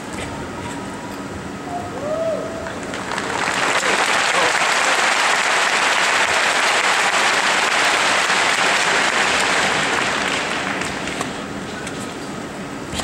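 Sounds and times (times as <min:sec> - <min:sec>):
crowd applauding: 0:02.6 - 0:11.3.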